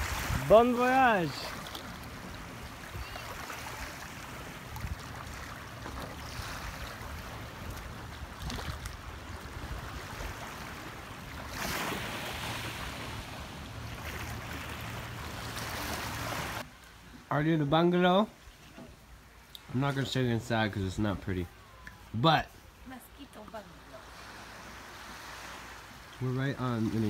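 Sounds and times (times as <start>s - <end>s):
wind rumbling on microphone: 0.0s - 0.7s, 1.5s - 16.6s
small waves washing on shore: 0.0s - 17.0s, 18.4s - 27.0s.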